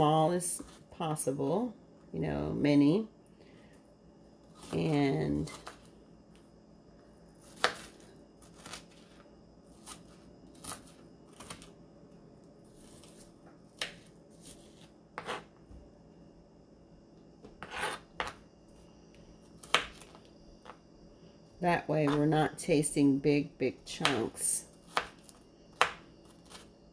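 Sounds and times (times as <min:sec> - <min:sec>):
knife chopping on plastic board: 0:15.2 - 0:15.4, 0:17.5 - 0:18.4, 0:25.8 - 0:26.6.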